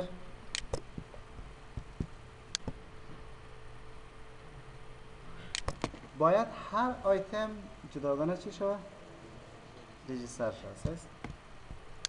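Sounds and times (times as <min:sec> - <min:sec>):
faint steady hum: 0:00.0 - 0:12.0
computer mouse clicks: 0:00.5 - 0:01.1, 0:01.8 - 0:02.8, 0:05.5 - 0:06.0.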